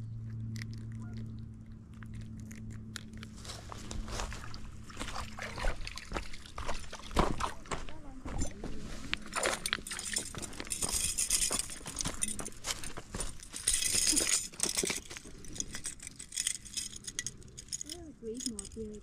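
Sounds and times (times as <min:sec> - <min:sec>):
low hum: 0:00.0 - 0:19.0
water sloshing and splashing: 0:02.0 - 0:19.0
handling clicks and knocks: 0:08.3 - 0:19.0.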